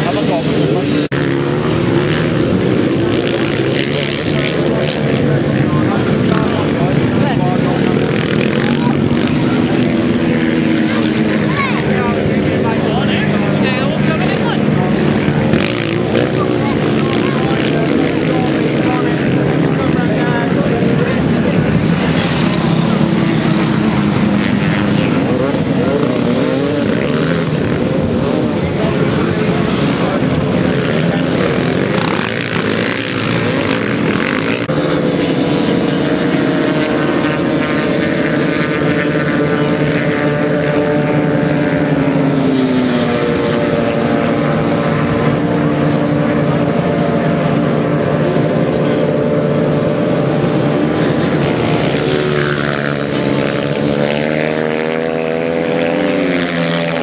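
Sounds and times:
dirt bike engines revving: 0.0 - 57.0.

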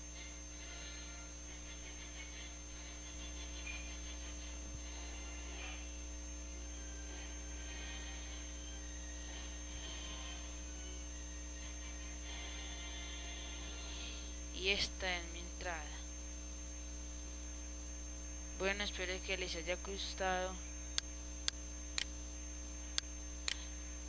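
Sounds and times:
faint indistinct high sounds: 0.0 - 17.7
electrical mains hum: 0.0 - 24.0.

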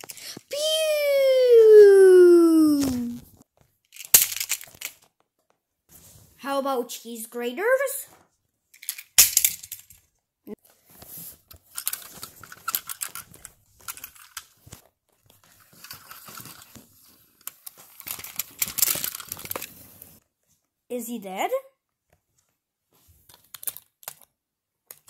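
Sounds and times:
plastic toy trains clattering: 3.9 - 5.1, 11.6 - 14.6, 15.6 - 16.8, 17.4 - 19.8.

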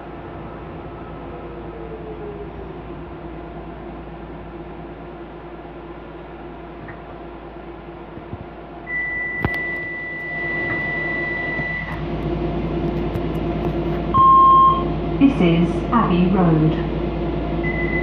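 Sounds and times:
train running hum: 0.0 - 18.0
brake squeal: 8.9 - 12.0.

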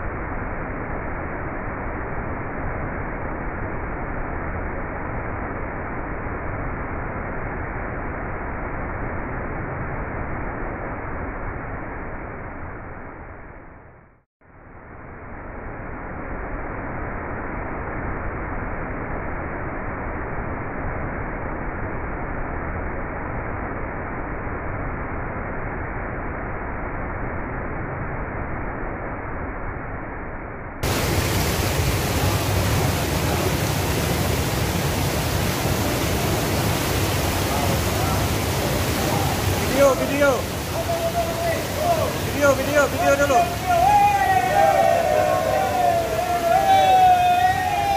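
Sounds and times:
fast river water: 30.8 - 47.9
waterfall rushing: 30.8 - 47.9.

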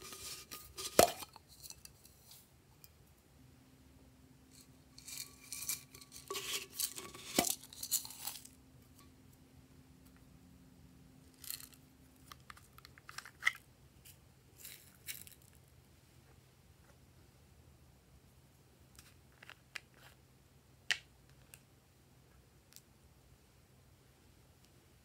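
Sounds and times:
glitter shaken from paper cups: 5.0 - 8.6.

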